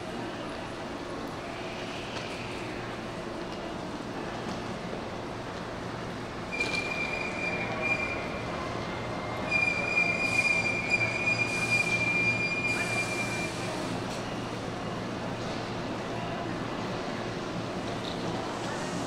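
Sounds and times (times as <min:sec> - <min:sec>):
train wheels squealing: 0:06.5 - 0:08.4, 0:09.0 - 0:13.8.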